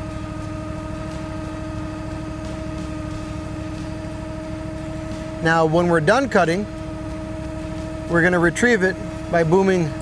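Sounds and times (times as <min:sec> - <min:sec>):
boat engine humming: 0:00.0 - 0:10.0
hydraulic whine: 0:00.0 - 0:10.0.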